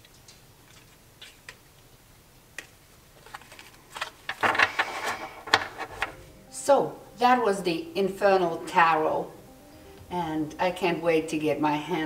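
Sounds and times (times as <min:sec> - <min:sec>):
riffle shuffle of cards: 0:03.2 - 0:06.2.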